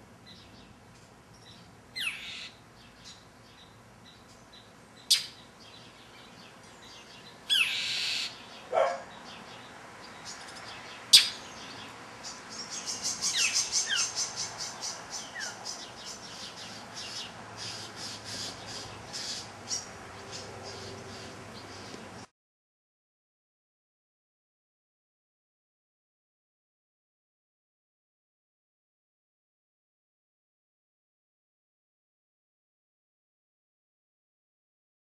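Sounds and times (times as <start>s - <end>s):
bird rasping squawk: 2.0s - 2.5s, 7.5s - 9.0s
mockingbird scolding calls: 2.0s - 2.6s, 5.0s - 5.5s, 7.5s - 9.1s, 11.1s - 11.7s, 12.3s - 21.9s.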